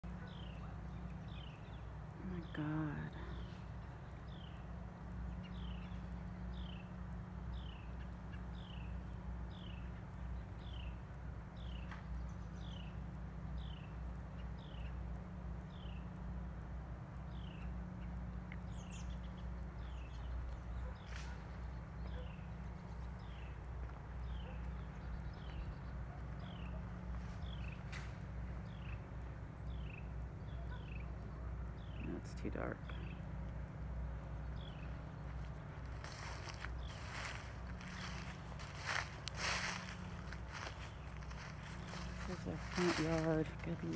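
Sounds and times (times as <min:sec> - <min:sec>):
steady low hum: 0:00.0 - 0:43.9
bird chirping: 0:00.1 - 0:11.0, 0:34.2 - 0:43.9.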